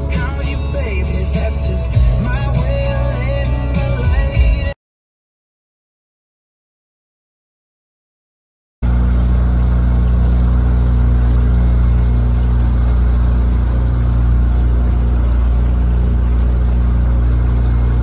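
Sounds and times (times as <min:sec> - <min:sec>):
outboard motor running: 0:00.0 - 0:03.7, 0:08.8 - 0:18.0.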